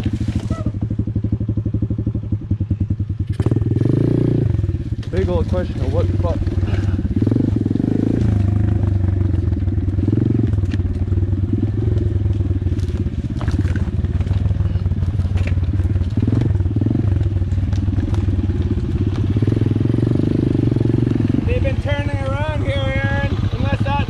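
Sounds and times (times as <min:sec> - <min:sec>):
small motorbike engine running: 0:00.0 - 0:24.0
twigs snapping under tyres: 0:03.2 - 0:03.5, 0:04.9 - 0:05.2, 0:09.5 - 0:19.9.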